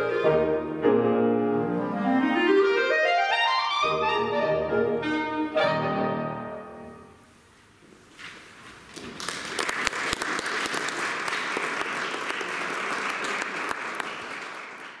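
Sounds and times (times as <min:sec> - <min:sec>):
audience applauding: 0:08.9 - 0:15.0.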